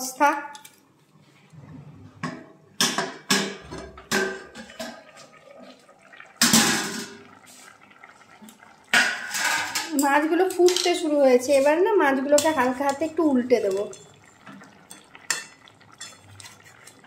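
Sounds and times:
gravy bubbling: 4.1 - 9.4, 12.6 - 17.0.

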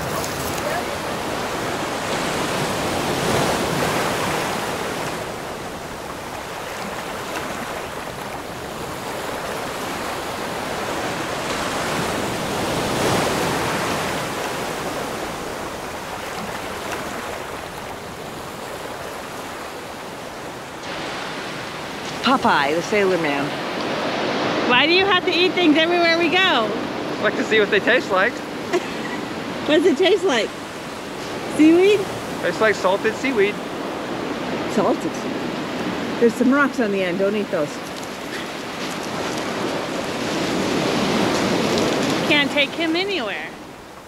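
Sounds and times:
surf breaking on pebble beach: 37.8 - 43.6.

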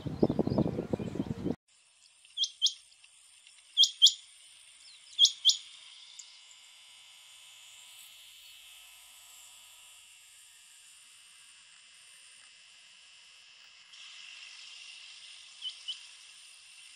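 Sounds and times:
quail calling: 3.8 - 4.2, 5.2 - 5.6.

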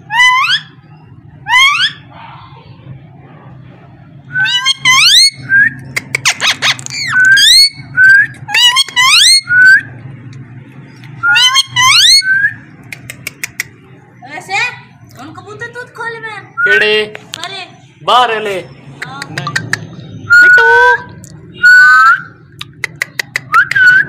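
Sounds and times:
parakeet squawking: 0.0 - 2.1, 4.3 - 9.9, 11.2 - 13.8, 19.0 - 24.0
sharp clicks: 12.8 - 13.8, 22.6 - 23.9.

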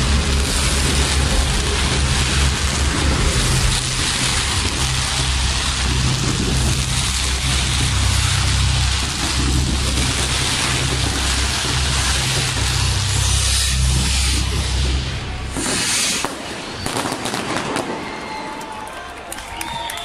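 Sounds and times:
deep low rumble: 0.0 - 15.9
fireworks hissing crackle: 0.0 - 18.9.

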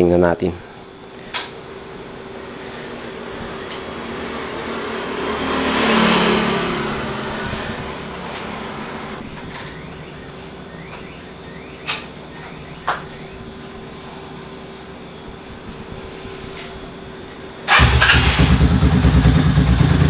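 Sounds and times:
motorcycle engine idling: 17.7 - 20.0.

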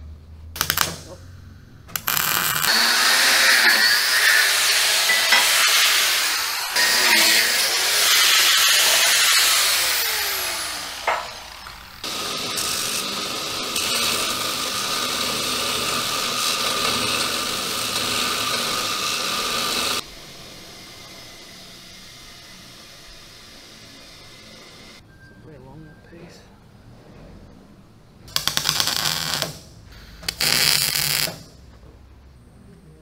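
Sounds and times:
mig welding: 0.6 - 1.2, 1.9 - 25.0, 28.3 - 31.6
belt grinder grinding steel: 1.9 - 20.0
angle grinder: 1.9 - 25.0, 28.3 - 29.5, 30.3 - 31.4.

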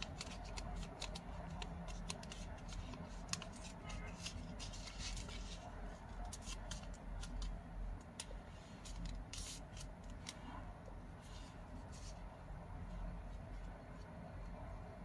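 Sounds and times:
paper crinkling as folded: 0.0 - 7.6.

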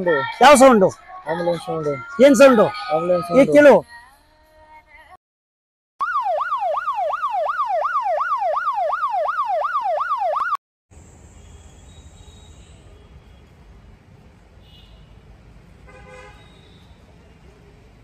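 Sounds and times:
ambulance siren wailing: 6.0 - 10.6
low traffic rumble: 10.9 - 18.0.

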